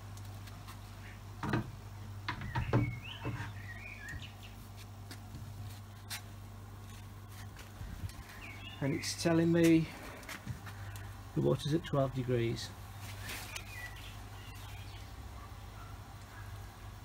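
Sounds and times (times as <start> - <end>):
steady low hum: 0.0 - 17.0
small bird chirping: 2.4 - 4.6, 13.2 - 15.2.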